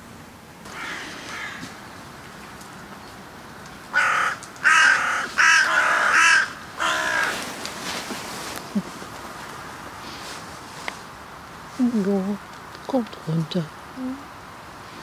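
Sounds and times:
crows cawing: 0.7 - 1.8, 3.9 - 7.5.

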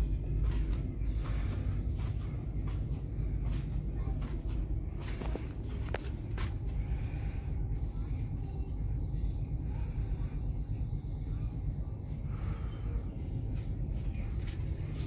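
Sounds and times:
ship machinery rumbling: 0.0 - 15.0.

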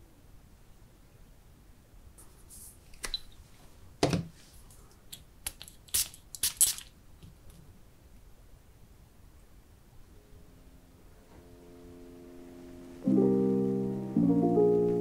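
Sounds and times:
hissy handling sounds: 2.2 - 7.7.

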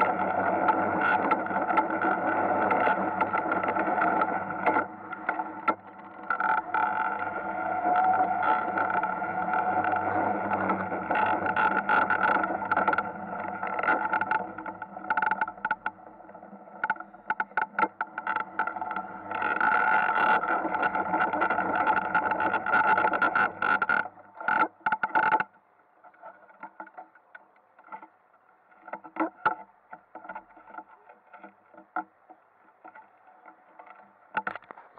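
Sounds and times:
kart motor running: 0.0 - 14.8
kart rattling and scraping on ice: 0.0 - 25.4.

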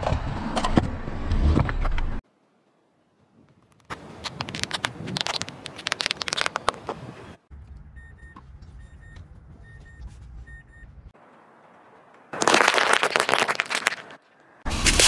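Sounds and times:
tyre crushing tomatoes: 12.4 - 14.1.

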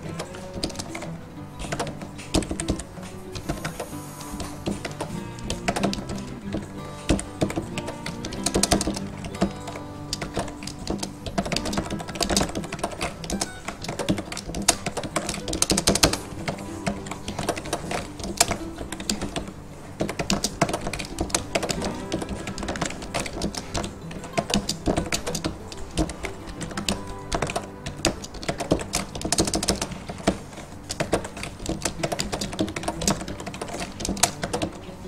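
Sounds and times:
computer keyboard typing: 0.0 - 35.0.

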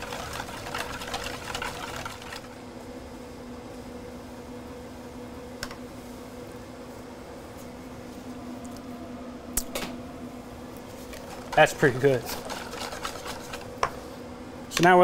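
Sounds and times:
whisk scraping metal bowl: 0.0 - 2.5, 11.1 - 13.7
steady low hum: 0.0 - 15.0.

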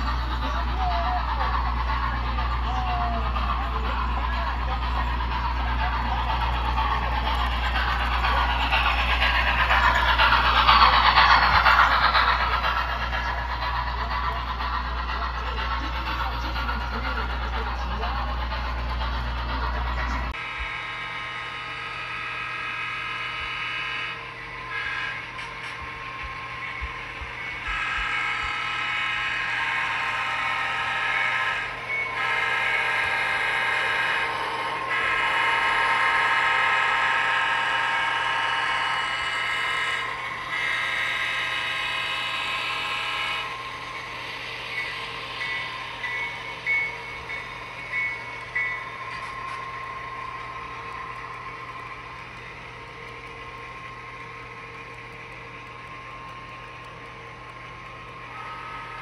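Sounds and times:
train running noise: 0.0 - 59.0
high-pitched train horn: 20.4 - 25.4, 27.6 - 43.8.

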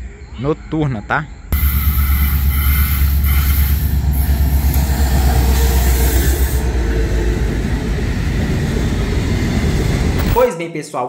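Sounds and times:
diesel locomotive engine rumbling: 1.5 - 10.4
freight cars rolling on track: 1.6 - 10.4.

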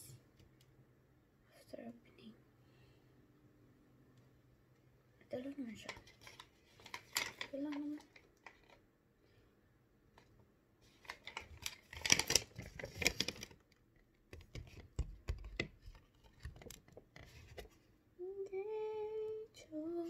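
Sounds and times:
plastic pouch crinkling: 11.0 - 13.6
woman humming: 18.2 - 20.0.

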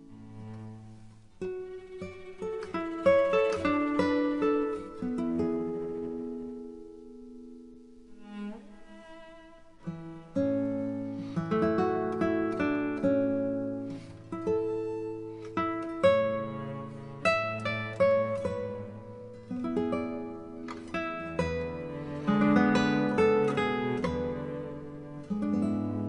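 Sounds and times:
acoustic guitar picking: 0.0 - 7.6, 9.9 - 26.0.

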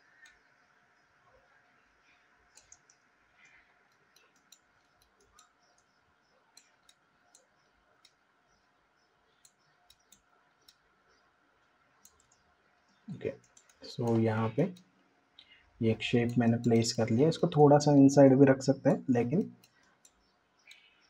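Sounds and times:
faint steady hum: 0.0 - 21.0
computer mouse clicks: 0.2 - 0.5, 2.5 - 8.2, 9.3 - 10.9, 12.0 - 12.5, 13.3 - 17.6, 19.4 - 21.0
keyboard clicks: 2.5 - 3.0, 12.0 - 12.4, 13.2 - 14.9, 15.8 - 18.2.

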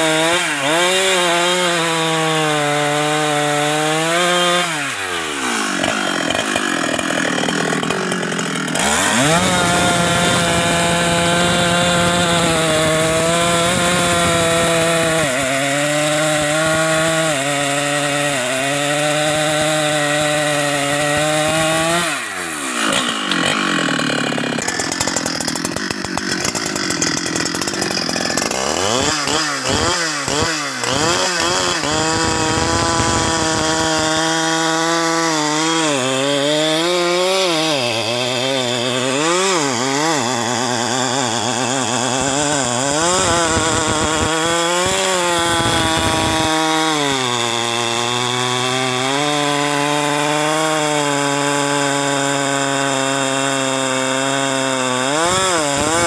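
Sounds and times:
chainsaw cutting log at high revs: 0.0 - 56.0.

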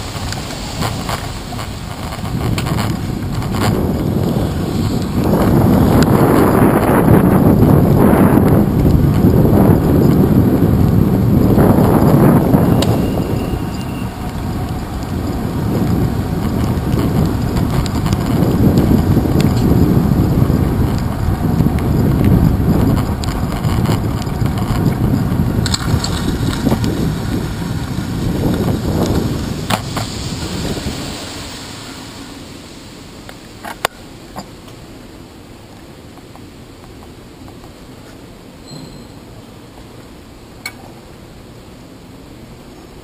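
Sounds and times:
wind rushing over microphone: 0.0 - 33.9.

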